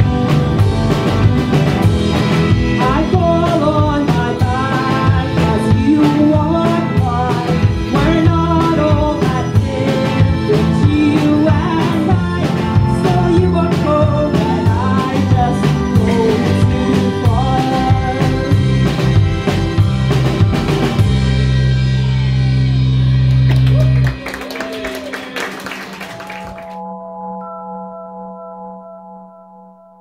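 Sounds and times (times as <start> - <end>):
live indie pop band: 0.0 - 26.6
person singing: 2.7 - 19.0.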